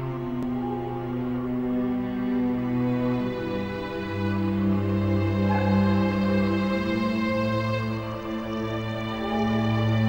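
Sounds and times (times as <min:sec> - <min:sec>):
slow sustained background music: 0:00.0 - 0:10.0.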